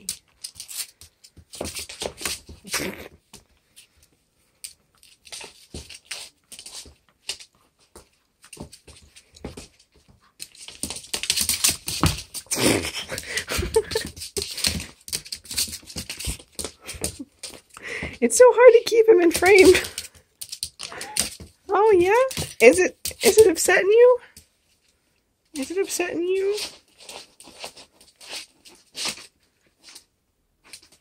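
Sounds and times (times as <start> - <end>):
dog claws clicking and skidding: 0.0 - 2.8, 4.6 - 17.8, 19.3 - 23.6
scuffles and knocks: 5.0 - 18.2.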